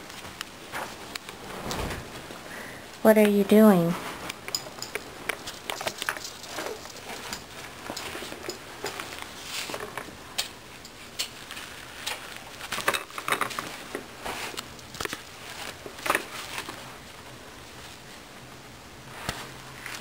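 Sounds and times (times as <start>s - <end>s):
diapers rustling and crinkling: 13.5s - 17.1s.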